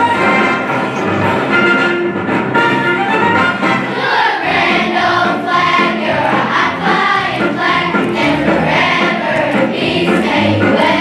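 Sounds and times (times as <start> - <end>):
instrumental backing: 0.0 - 11.0
children's choir singing: 3.7 - 11.0.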